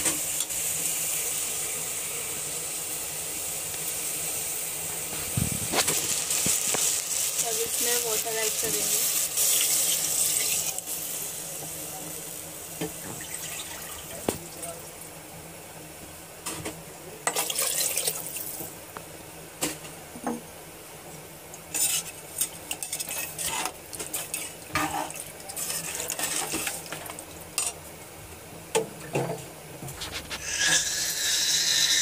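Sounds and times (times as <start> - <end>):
spoon scraping pressure cooker: 30.3 - 32.0.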